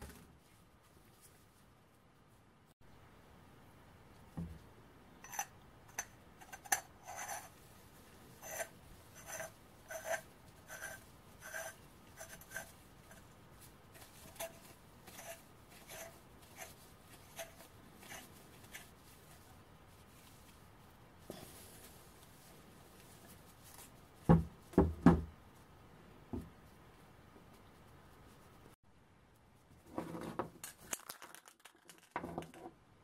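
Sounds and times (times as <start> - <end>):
metal threads scraping and squeaking: 5.2 - 7.6, 8.4 - 12.8, 14.2 - 18.9.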